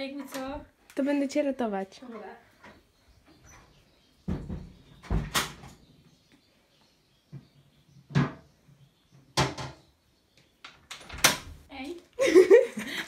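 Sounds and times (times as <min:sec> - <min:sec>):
objects knocking and thumping: 0:03.4 - 0:05.8, 0:07.3 - 0:08.5, 0:09.2 - 0:09.9.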